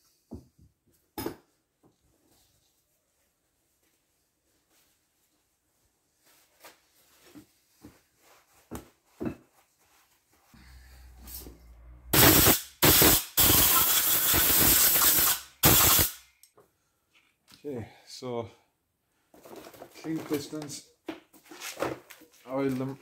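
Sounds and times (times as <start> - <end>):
spray hissing: 12.1 - 16.2.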